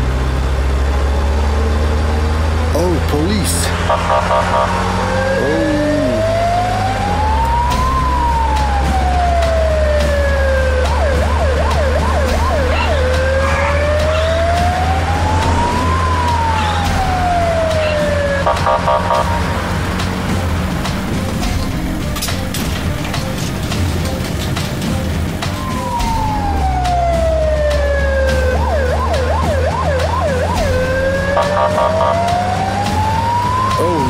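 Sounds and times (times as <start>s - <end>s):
low engine drone: 0.0s - 34.0s
police siren wailing and yelping: 3.8s - 19.6s, 25.4s - 34.0s.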